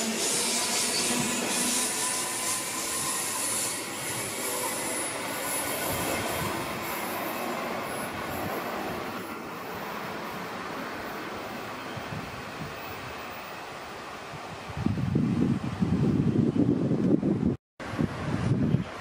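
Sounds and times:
high wheel squeal: 0:00.0 - 0:09.1
train wheels rumbling on rail: 0:00.0 - 0:12.7.

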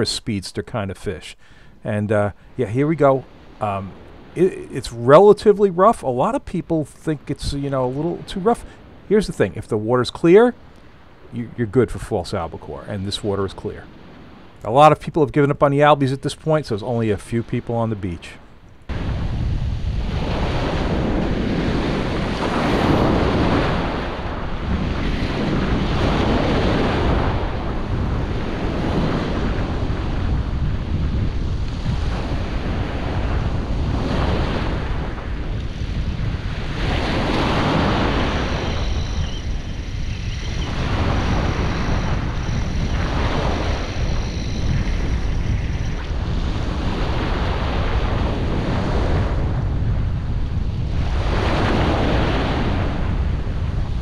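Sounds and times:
surf breaking: 0:18.9 - 0:49.7
wind buffeting microphone: 0:18.9 - 0:54.0.

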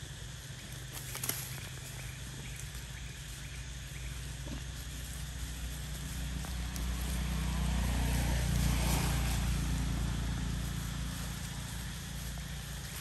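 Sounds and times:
motor vehicle passing by: 0:02.0 - 0:13.0.

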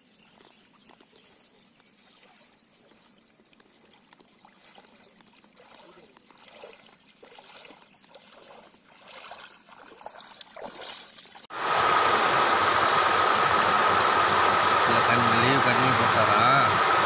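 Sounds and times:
water sloshing while wading: 0:00.2 - 0:11.5
floodwater rushing: 0:05.6 - 0:17.0.

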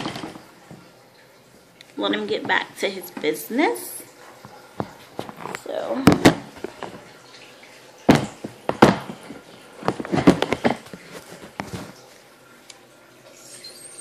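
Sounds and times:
sharp knocks and rustling: 0:04.3 - 0:07.1, 0:08.1 - 0:12.0.

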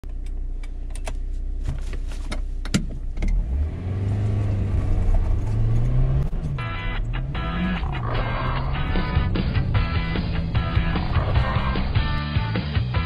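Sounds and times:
car engine idling and accelerating: 0:00.0 - 0:13.0
music: 0:06.6 - 0:13.0.

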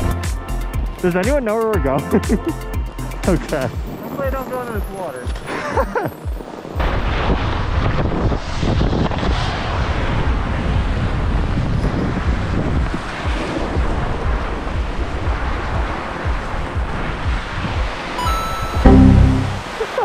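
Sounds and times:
wind buffeting microphone: 0:06.6 - 0:18.0.

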